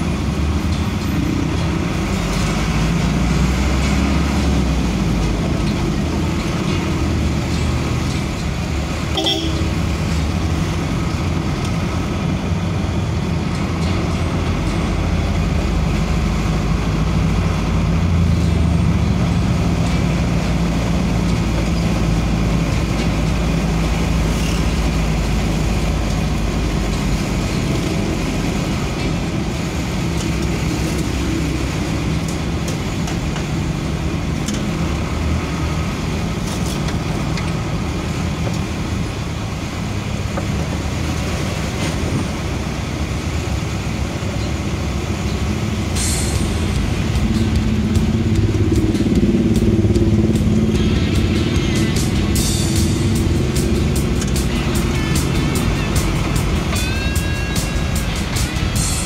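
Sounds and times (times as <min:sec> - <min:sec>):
vehicle engine and road noise: 0:00.0 - 0:59.0
short horn toot: 0:09.1 - 0:09.7.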